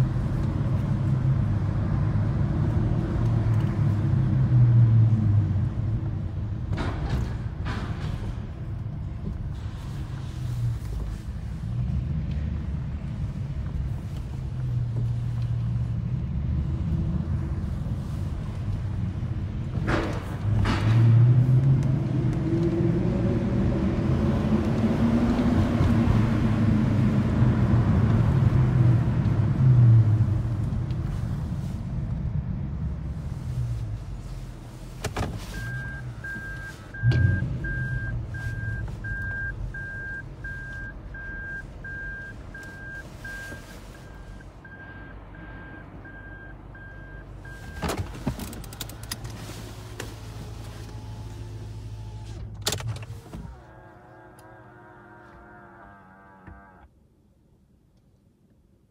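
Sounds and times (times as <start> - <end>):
car engine heard from cabin: 8.6 - 57.2
reversing warning beeps: 35.6 - 47.8.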